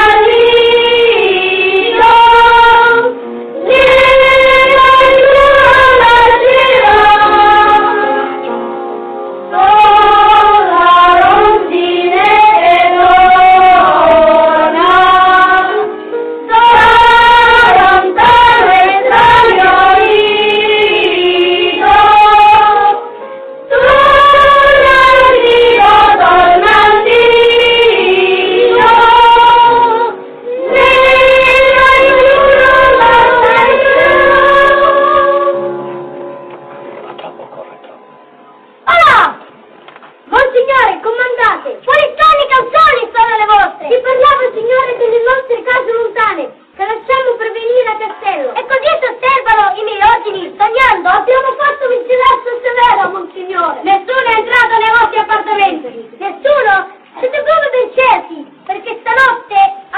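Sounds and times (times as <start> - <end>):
boys choir singing: 0.0 - 8.3, 9.5 - 15.9, 16.5 - 23.0, 23.7 - 36.0.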